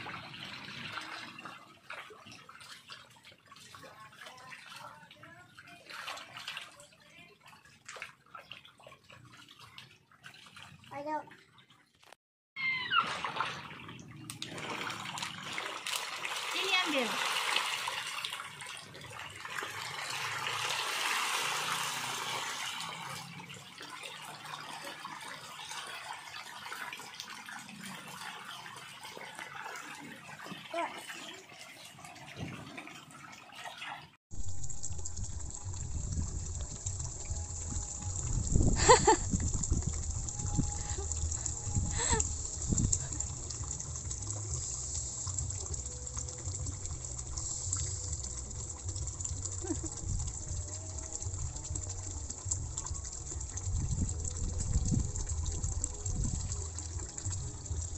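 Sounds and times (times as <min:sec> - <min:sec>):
fish splashing at water surface: 0:12.6 - 0:57.9
low rumble: 0:34.4 - 0:44.7.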